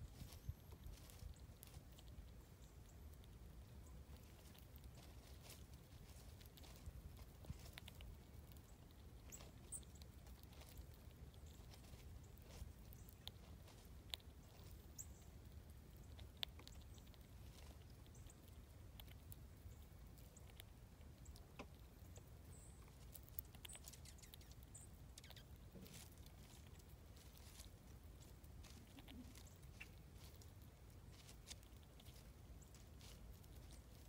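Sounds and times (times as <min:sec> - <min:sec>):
low steady rumble: 0:00.0 - 0:23.6
squirrel chewing and cracking seeds: 0:00.0 - 0:34.0
high bird chirps: 0:23.7 - 0:25.5.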